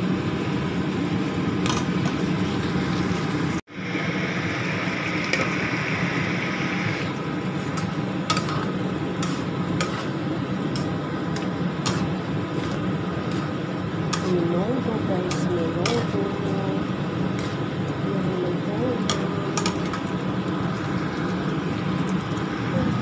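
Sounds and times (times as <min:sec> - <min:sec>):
food sizzling in a wok: 0:03.7 - 0:17.7.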